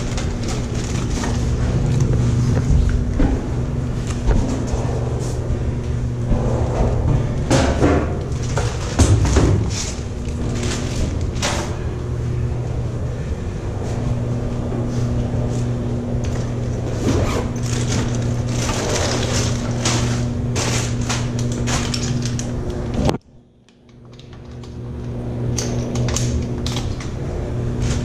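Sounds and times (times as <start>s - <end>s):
rummaging through gear bags: 0.0s - 3.0s, 16.4s - 22.5s
low machinery hum: 0.0s - 28.0s.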